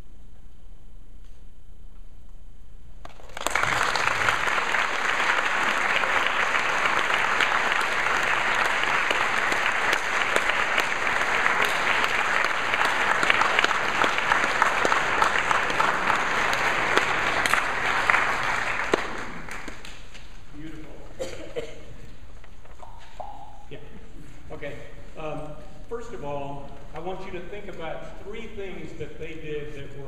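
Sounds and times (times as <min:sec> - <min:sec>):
audience applauding: 0:03.0 - 0:20.0.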